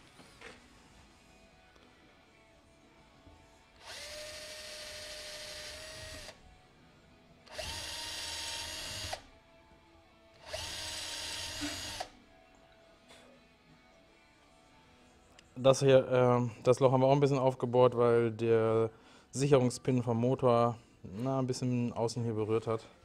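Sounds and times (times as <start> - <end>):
electric drill boring metal: 3.8 - 6.4, 7.5 - 9.3, 10.4 - 12.1.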